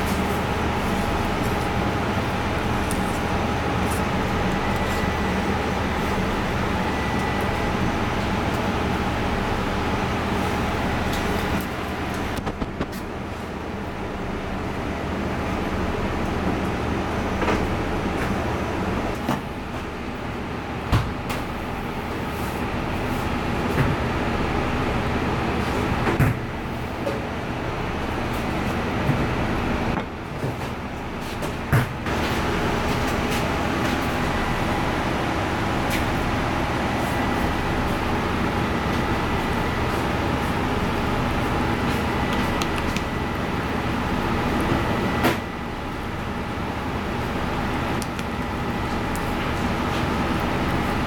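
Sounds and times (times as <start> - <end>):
faint steady whine: 0.0 - 19.1
machinery low rumble: 0.0 - 19.1
low mechanical hum: 0.0 - 51.0.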